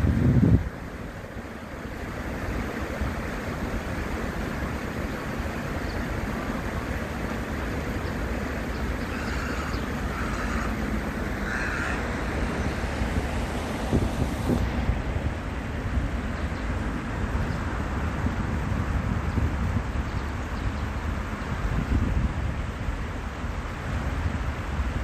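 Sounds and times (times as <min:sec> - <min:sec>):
flowing stream: 0:00.0 - 0:25.0
wind noise on microphone: 0:00.0 - 0:25.0
harsh bird calls: 0:08.0 - 0:13.0.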